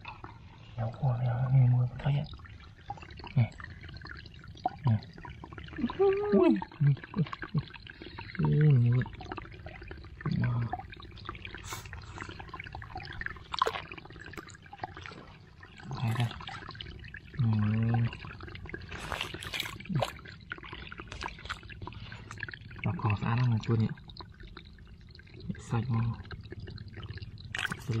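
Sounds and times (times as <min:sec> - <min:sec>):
shallow water trickling and splashing: 0:00.0 - 0:28.0
man's wordless voice sounds: 0:00.8 - 0:02.3, 0:15.8 - 0:16.5, 0:27.7 - 0:28.0.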